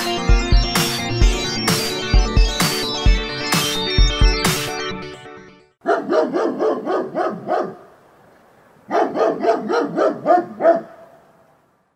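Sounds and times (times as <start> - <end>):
dog barking: 5.8 - 7.9, 8.9 - 11.2.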